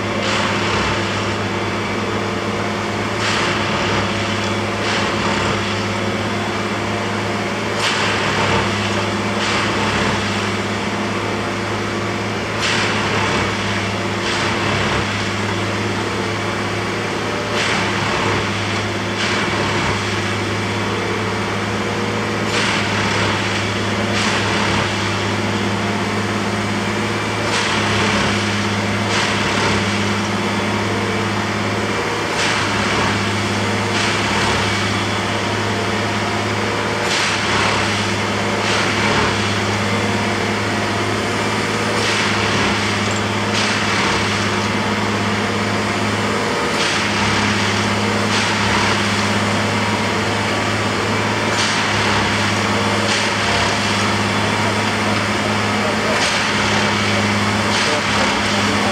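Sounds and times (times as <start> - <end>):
diesel engine running: 0.0 - 58.9
harsh tamping noise: 0.0 - 58.9.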